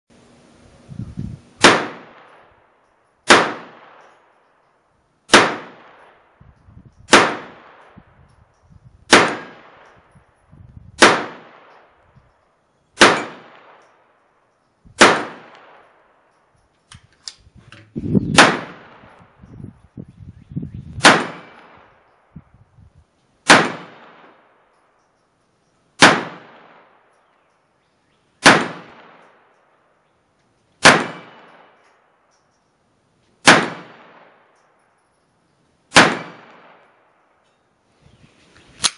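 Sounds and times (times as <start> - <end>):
pistol shots with echo: 1.6 - 2.6, 3.2 - 4.3, 5.3 - 6.4, 7.1 - 8.0, 9.1 - 10.0, 11.0 - 12.0, 13.0 - 14.0, 15.0 - 16.2, 18.3 - 19.2, 21.0 - 22.2, 23.4 - 24.7, 26.0 - 27.3, 28.4 - 29.6, 30.8 - 32.0, 33.4 - 34.6, 35.9 - 37.2
gun handling clicks: 3.8 - 4.8, 13.5 - 14.8, 15.4 - 18.0, 29.0 - 35.0, 38.6 - 38.9.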